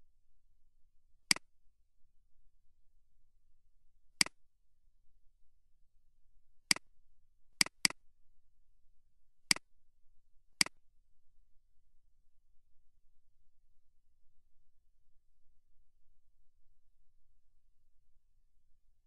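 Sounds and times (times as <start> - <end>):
computer mouse clicking: 7.6 - 8.0.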